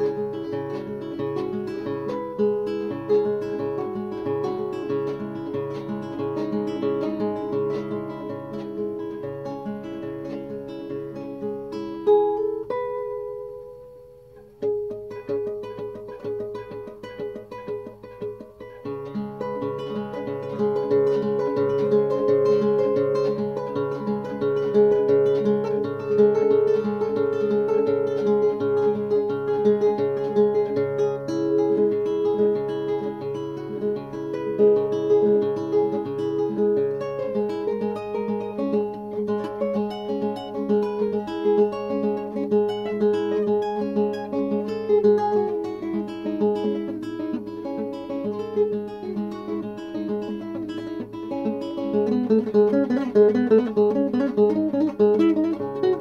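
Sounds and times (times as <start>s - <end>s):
classical guitar playing: 0.0s - 56.0s.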